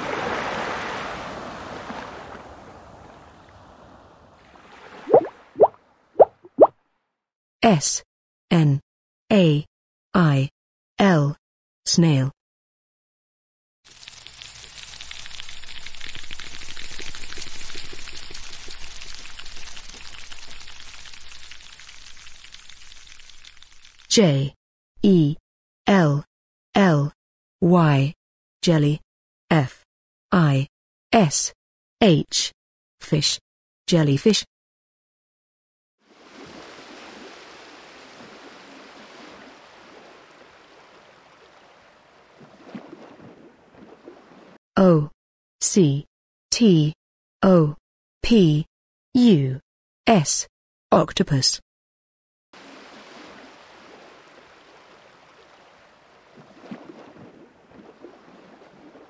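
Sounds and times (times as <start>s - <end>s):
rushing water: 0.0s - 6.7s, 13.9s - 24.1s, 36.0s - 44.6s, 52.6s - 59.0s.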